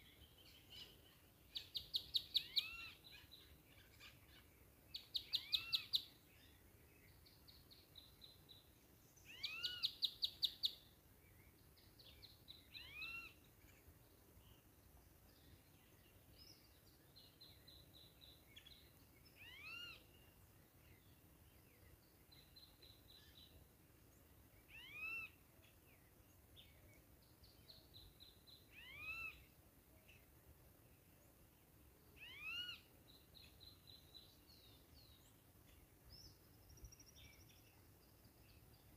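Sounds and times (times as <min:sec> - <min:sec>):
faint background hiss: 0:00.0 - 0:38.9.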